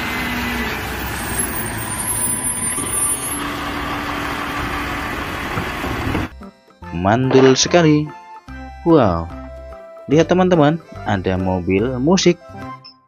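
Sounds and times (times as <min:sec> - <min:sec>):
truck diesel engine running: 0:00.0 - 0:06.3.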